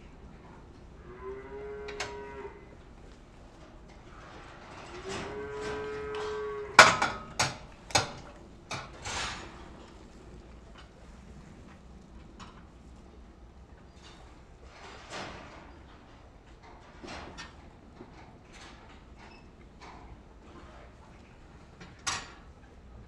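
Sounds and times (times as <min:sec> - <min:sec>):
cow mooing: 0:01.0 - 0:02.7, 0:04.9 - 0:07.2
sharp knocks and clanks: 0:06.8 - 0:09.5.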